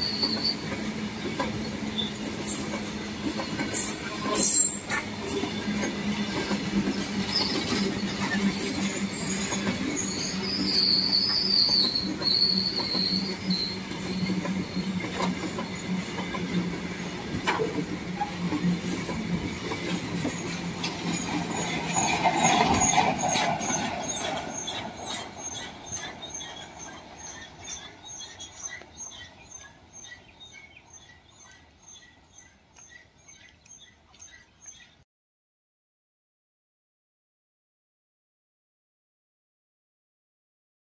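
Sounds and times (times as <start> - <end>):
train wheels clattering and rumbling: 0.0 - 33.5
bird chirping: 24.1 - 35.0.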